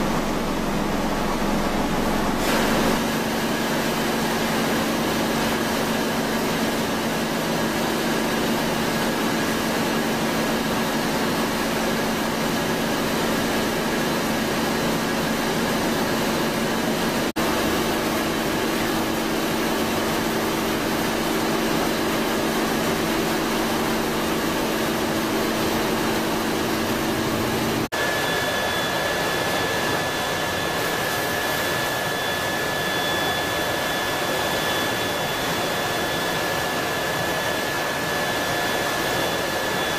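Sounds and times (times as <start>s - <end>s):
machine rushing running noise: 0.0s - 6.8s, 12.2s - 28.2s.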